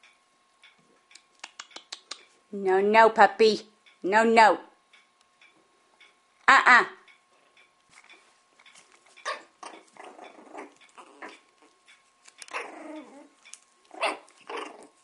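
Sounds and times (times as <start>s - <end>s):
puppies growling: 8.0s - 15.0s
puppies yipping: 9.1s - 15.0s.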